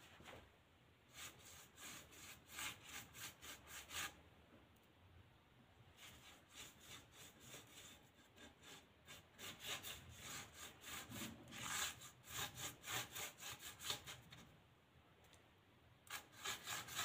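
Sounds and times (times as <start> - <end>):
paintbrush scrubbing on board: 1.1 - 4.2, 5.9 - 14.4, 16.1 - 17.0.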